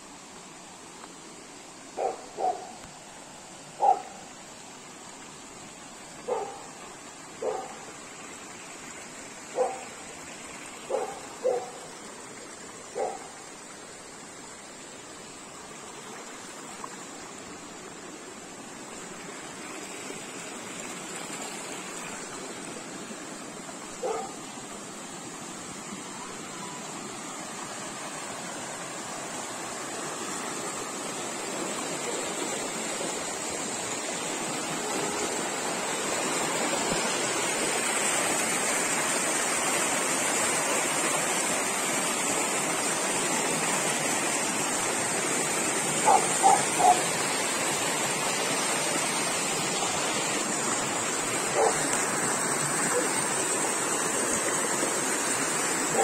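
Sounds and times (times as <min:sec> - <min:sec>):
river rushing over rocks: 0:00.0 - 0:56.0
dog barking: 0:02.0 - 0:02.8, 0:03.8 - 0:04.2, 0:06.3 - 0:06.6, 0:07.4 - 0:07.8, 0:09.6 - 0:09.9, 0:10.9 - 0:11.8, 0:13.0 - 0:13.3, 0:24.0 - 0:24.4, 0:46.0 - 0:47.0, 0:51.6 - 0:51.8.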